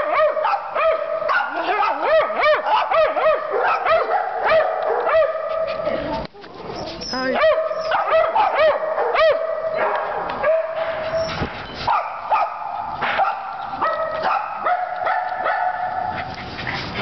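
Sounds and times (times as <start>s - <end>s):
small dogs barking and yipping: 0.0s - 17.0s
dogs whining: 4.8s - 8.5s, 10.8s - 12.0s.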